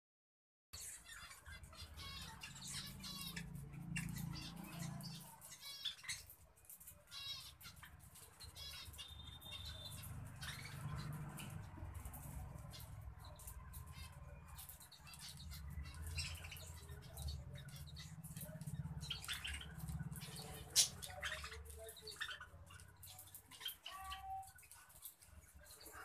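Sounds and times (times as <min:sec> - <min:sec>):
budgerigars chirping softly: 0:00.8 - 0:26.0.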